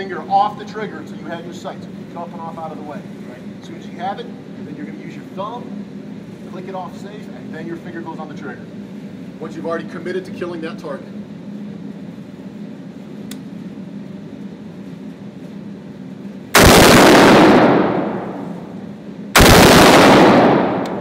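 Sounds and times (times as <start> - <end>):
rifle shots echoing indoors: 16.6 - 18.8, 19.4 - 21.0.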